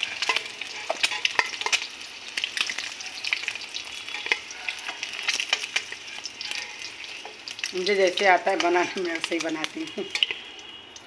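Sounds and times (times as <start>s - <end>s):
metal spatula scraping pan: 0.0s - 1.9s, 3.9s - 7.4s, 9.9s - 10.5s
eggs sizzling in hot oil: 0.0s - 11.0s.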